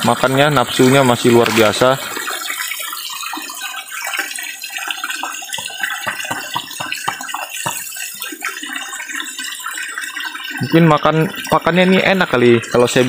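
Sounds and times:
churning water: 0.0 - 13.0
fish splashing at water surface: 0.7 - 10.6.

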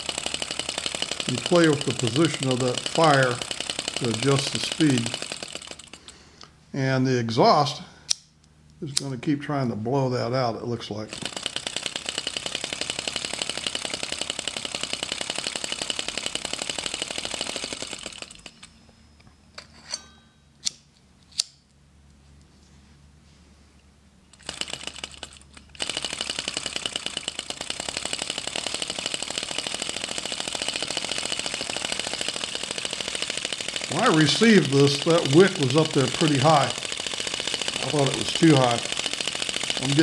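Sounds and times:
model engine ticking: 0.0 - 6.1, 11.1 - 18.6, 24.4 - 40.0
sharp metal clicks: 0.0 - 6.2, 11.1 - 21.7, 24.3 - 40.0.

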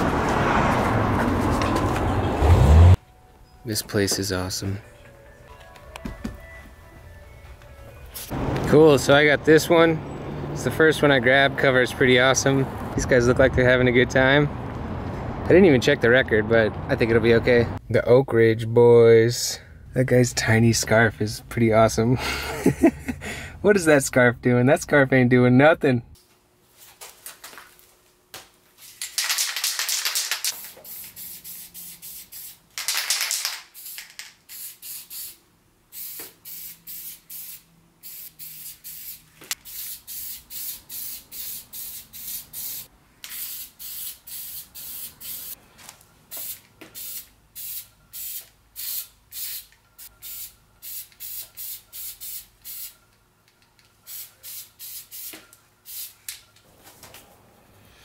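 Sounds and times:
spray paint can spraying: 29.0 - 45.6, 46.3 - 53.0, 54.1 - 56.3.

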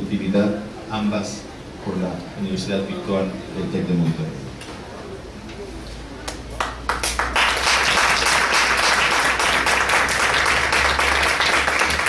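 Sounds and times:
audience clapping: 6.2 - 12.0.

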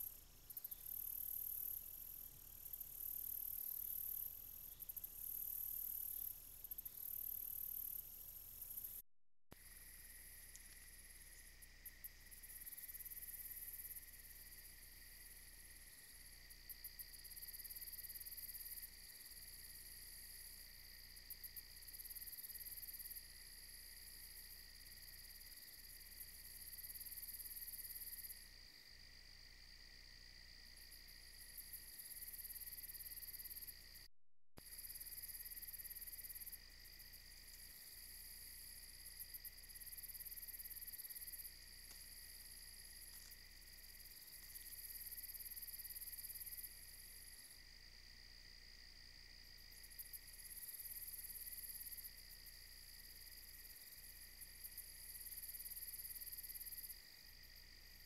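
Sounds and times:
insects trilling: 0.0 - 9.0, 9.6 - 34.0, 34.6 - 58.0.

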